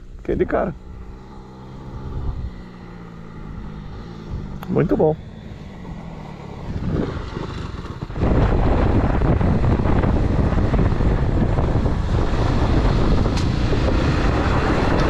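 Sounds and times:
motorcycle engine running: 0:00.0 - 0:15.0
wind noise on microphone: 0:01.8 - 0:02.7, 0:03.7 - 0:05.1, 0:06.6 - 0:15.0.

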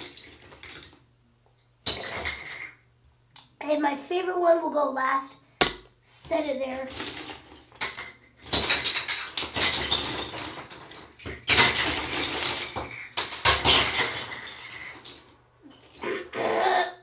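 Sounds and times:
bottle caps clattering into tub: 0:00.0 - 0:01.0, 0:01.8 - 0:02.7, 0:06.9 - 0:16.1.

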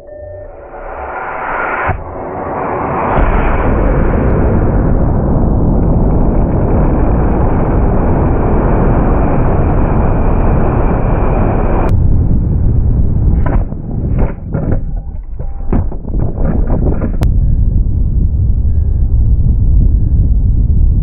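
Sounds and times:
rocket motor roaring: 0:00.6 - 0:14.6
wind buffeting microphone: 0:02.0 - 0:21.0.

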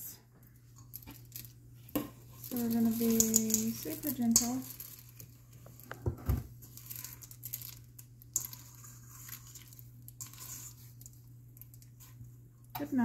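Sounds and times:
spatula scraping and squishing batter: 0:06.6 - 0:12.4.

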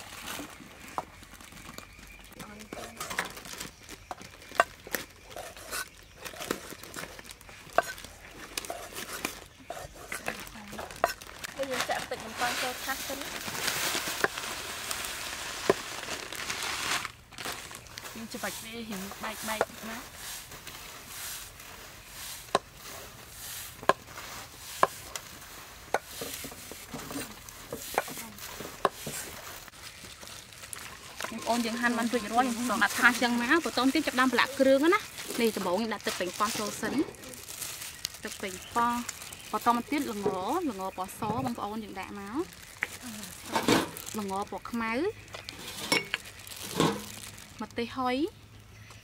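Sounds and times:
breadcrumbs rustling on a metal tray: 0:00.0 - 0:47.5.

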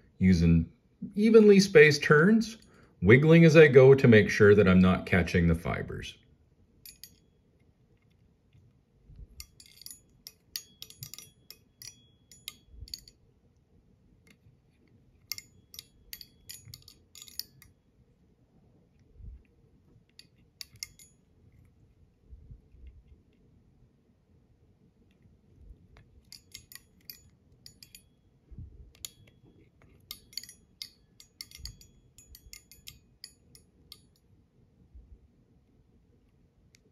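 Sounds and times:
wire clicking and crackling: 0:28.8 - 0:34.2.

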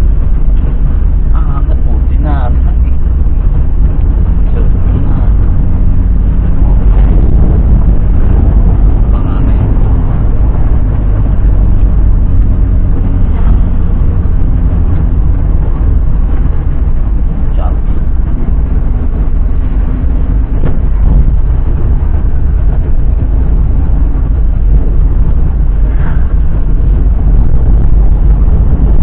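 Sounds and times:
car engine and road rumble: 0:00.0 - 0:29.0.

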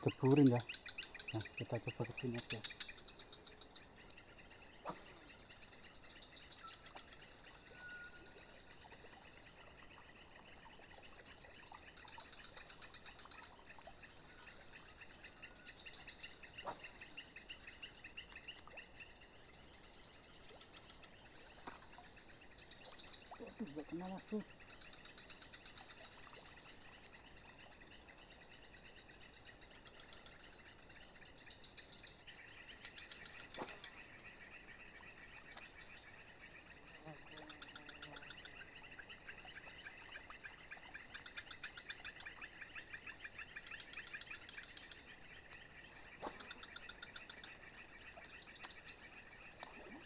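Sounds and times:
high-pitched insect drone: 0:00.0 - 0:50.0
low fast-pulsing insect trill: 0:00.0 - 0:50.0.

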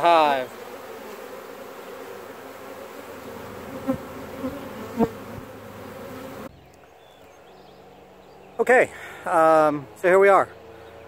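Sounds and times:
bee swarm buzzing: 0:00.0 - 0:08.6.

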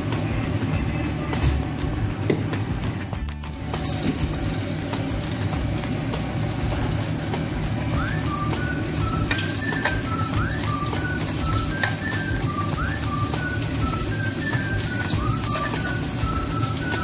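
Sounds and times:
water heating in pot hissing: 0:03.6 - 0:17.0
person whistling a tune: 0:07.8 - 0:17.0.

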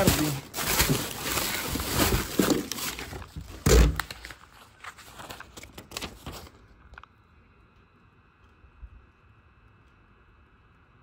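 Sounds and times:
plastic bags rustling: 0:00.0 - 0:06.8.

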